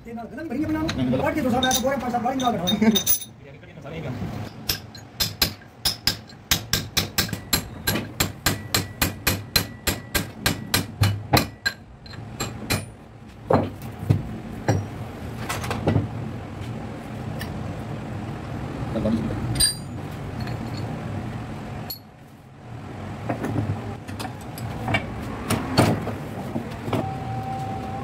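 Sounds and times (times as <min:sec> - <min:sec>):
hammer tapping on metal: 0:04.5 - 0:13.0.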